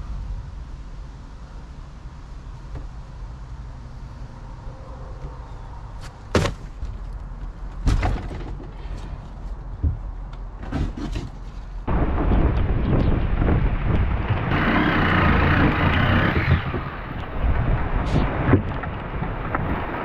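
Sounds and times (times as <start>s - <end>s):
low steady rumble: 0.0s - 6.0s
knocks and thuds in boat hull: 7.8s - 8.8s.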